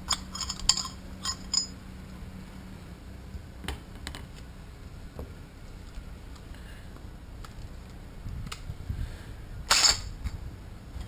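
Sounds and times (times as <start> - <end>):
metallic clicks and scrapes: 0.0 - 1.8.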